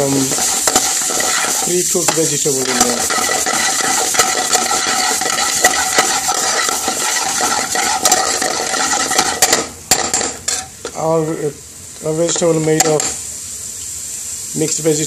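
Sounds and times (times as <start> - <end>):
metal spoon scraping frying pan: 0.0 - 10.8
frying sizzle: 0.0 - 15.0.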